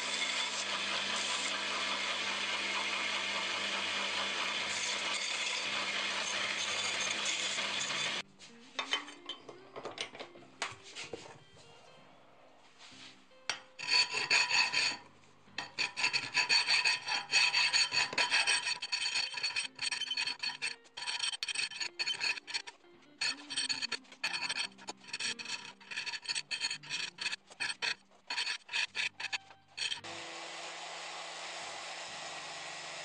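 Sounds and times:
hand file rasping on steel: 0.0s - 8.2s, 13.8s - 15.0s, 15.6s - 30.1s.

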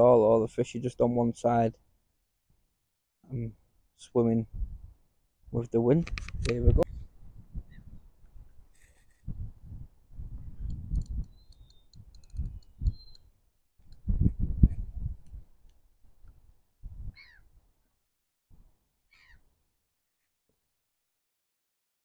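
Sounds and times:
wind buffeting microphone: 4.4s - 5.0s, 6.0s - 8.6s, 9.2s - 13.2s, 13.9s - 15.6s, 16.8s - 17.2s
faint high ticks: 10.6s - 13.3s.

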